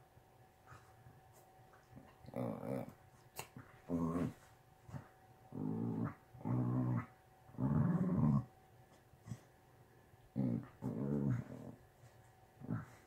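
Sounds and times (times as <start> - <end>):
dogs play-growling: 1.9 - 3.0, 3.6 - 8.6, 10.3 - 13.0.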